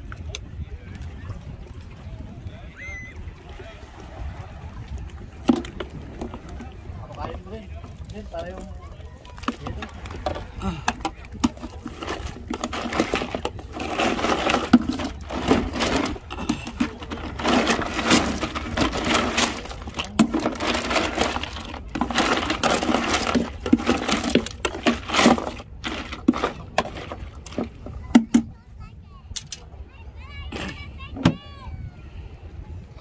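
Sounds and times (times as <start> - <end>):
hand rummaging through fish: 5.1 - 28.4.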